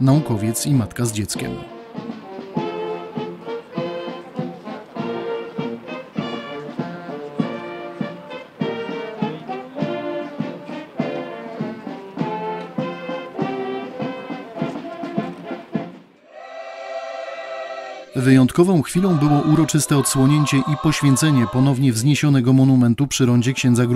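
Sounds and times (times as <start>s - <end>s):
brass marching band playing: 1.6s - 16.2s.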